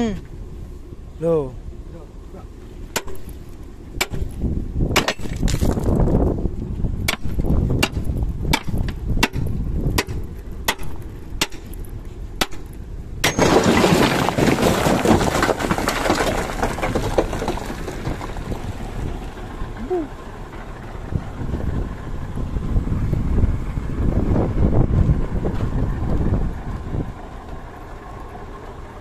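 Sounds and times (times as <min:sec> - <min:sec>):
sand and gravel pouring out: 0:13.3 - 0:19.6.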